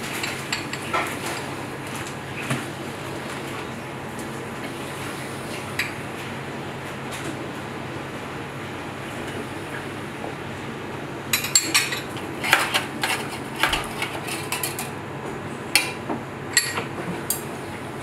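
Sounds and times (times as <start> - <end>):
metal utensils clinking: 11.4 - 15.0.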